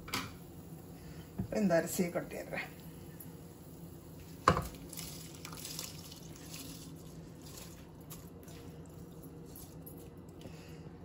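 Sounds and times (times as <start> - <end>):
rice pouring into boiling water: 3.6 - 10.2.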